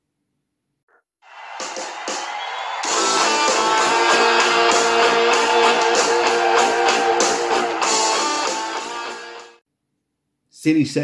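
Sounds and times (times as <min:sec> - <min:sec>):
guitar-driven music with beat: 0:02.8 - 0:09.6.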